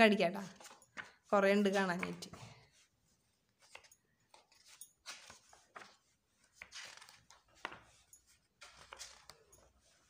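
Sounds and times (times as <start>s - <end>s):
book pages flipping: 0.4s - 10.0s
book tapping: 1.9s - 2.4s.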